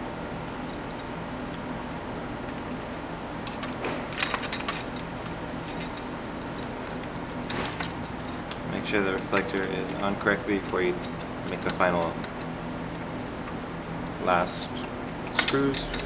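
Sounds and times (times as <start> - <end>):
steady low hum: 0.0 - 16.0
metal tools clinking: 3.4 - 6.7, 10.6 - 12.5, 15.1 - 16.0.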